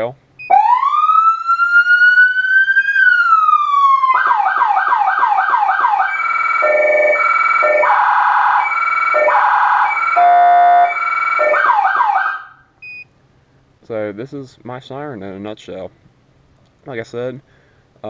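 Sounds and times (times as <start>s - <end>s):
electronic siren wailing and yelping: 0.4s - 12.6s.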